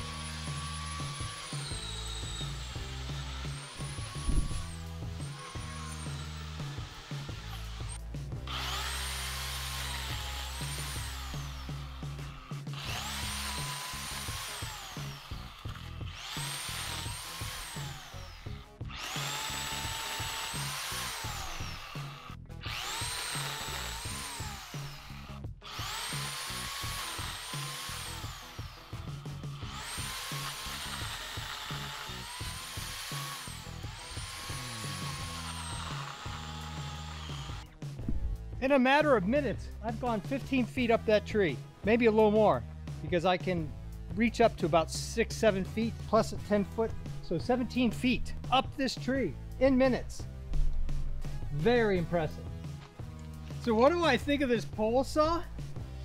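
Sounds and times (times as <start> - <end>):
electric chainsaw cutting limbs: 0.0 - 42.4
background music with beat: 37.3 - 56.0.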